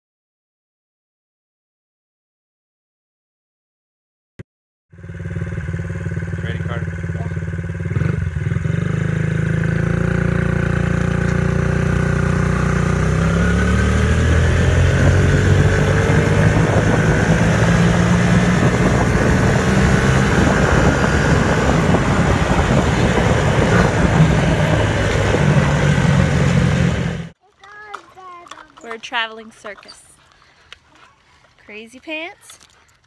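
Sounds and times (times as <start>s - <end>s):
dirt bike engine running: 4.9s - 30.2s.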